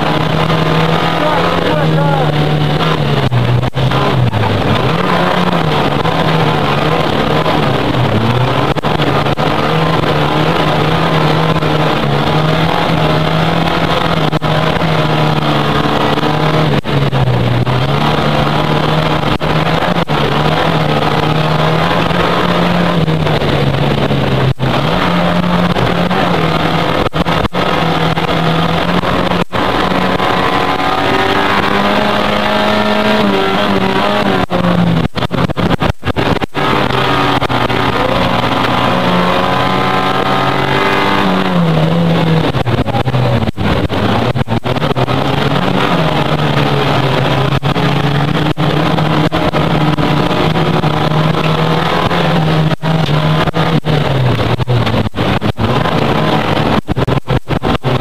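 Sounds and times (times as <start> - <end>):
car engine running hard: 0.0 - 58.0.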